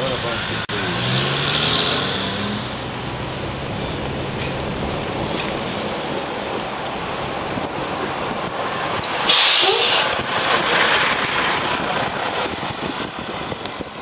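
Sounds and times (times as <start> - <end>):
car road and wind noise: 0.0 - 14.0
sudden loud hiss: 9.2 - 10.1.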